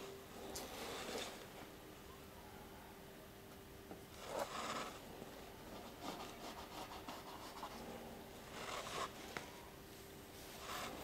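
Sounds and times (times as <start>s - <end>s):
plywood scraping against timber: 4.2s - 5.0s.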